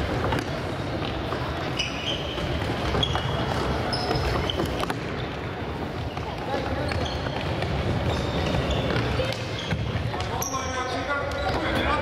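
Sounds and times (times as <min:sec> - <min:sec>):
sneaker squeaks on wooden floor: 0:00.2 - 0:12.0.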